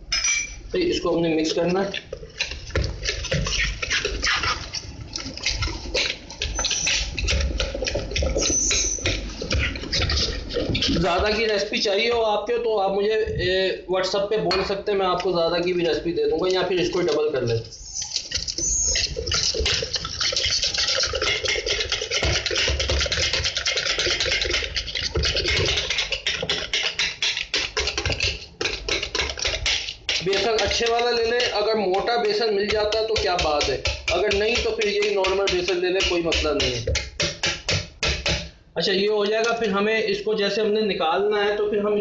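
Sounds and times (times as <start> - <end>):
whisk beating batter in bowl: 0.8 - 12.2, 14.5 - 38.6.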